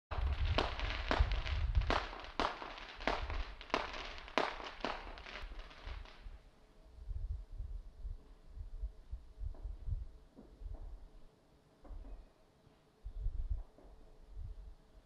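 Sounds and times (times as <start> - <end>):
fireworks bangs: 0.1 - 6.3
fireworks crackle: 0.1 - 6.4.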